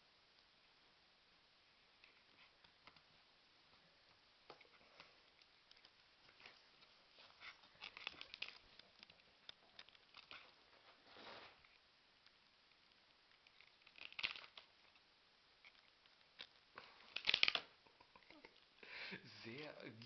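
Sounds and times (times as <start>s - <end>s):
rat nibbling and clicking: 4.4s - 10.7s, 11.6s - 18.8s
foil rustling: 9.8s - 11.8s.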